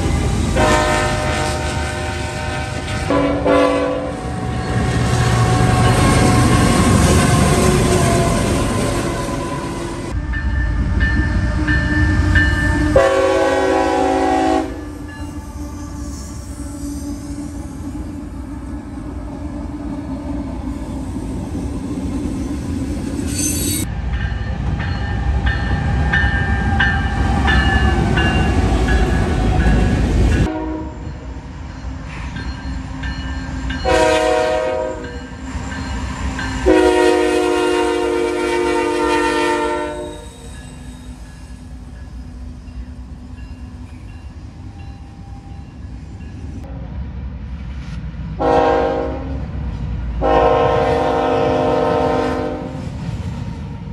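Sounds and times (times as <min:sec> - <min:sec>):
train rumbling past: 0:00.0 - 0:53.9
locomotive horn blasts: 0:00.6 - 0:08.2, 0:12.5 - 0:14.9, 0:30.4 - 0:31.2, 0:33.8 - 0:35.2, 0:36.6 - 0:40.3, 0:48.4 - 0:49.4, 0:50.2 - 0:52.8
crossing bell ringing: 0:04.4 - 0:13.2, 0:14.7 - 0:18.0, 0:22.2 - 0:37.2, 0:39.8 - 0:46.7.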